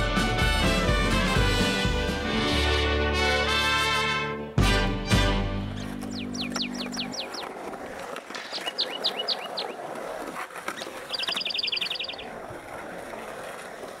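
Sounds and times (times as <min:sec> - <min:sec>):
birds chirping: 0:05.7 - 0:12.4
bird trill: 0:05.8 - 0:07.5, 0:08.4 - 0:09.8, 0:10.8 - 0:12.3.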